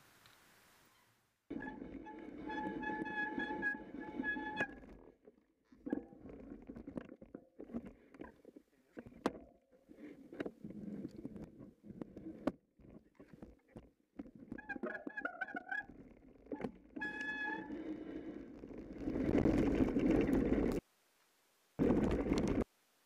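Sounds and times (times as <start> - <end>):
squealing tone: 0.9 - 4.9, 14.5 - 18.0.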